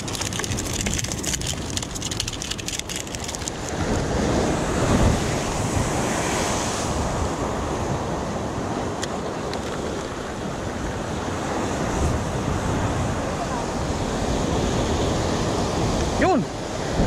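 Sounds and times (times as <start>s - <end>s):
rapid crackling ticks: 0.0s - 3.9s
surf washing against rocks: 0.0s - 17.0s.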